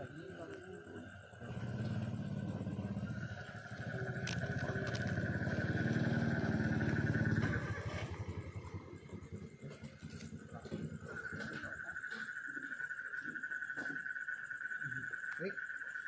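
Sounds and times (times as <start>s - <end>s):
engine low pulsing: 0.0s - 15.2s.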